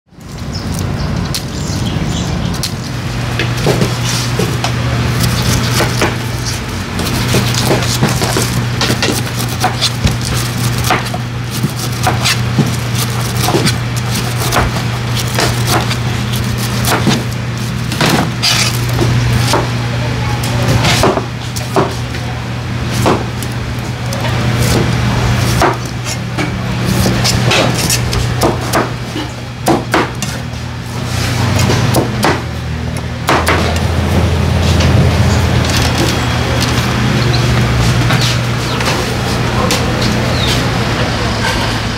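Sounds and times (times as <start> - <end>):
steady low hum: 0.1 - 41.9
knife slicing pineapple rind: 2.5 - 40.7
blade knocking cutting board: 3.4 - 19.8, 20.7 - 22.1, 22.9 - 23.5, 24.6 - 30.4, 31.5 - 32.5, 33.2 - 35.0.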